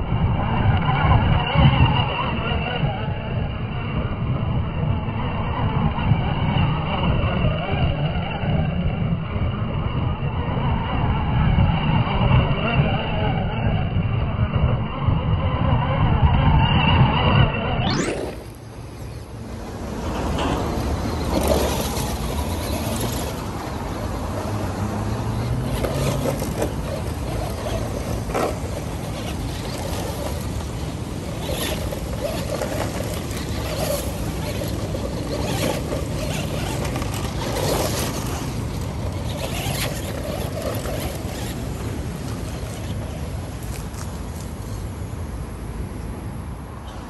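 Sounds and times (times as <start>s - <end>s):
toy truck motor surging: 0.2s - 45.0s
tyres scrabbling on gravel: 19.7s - 44.8s.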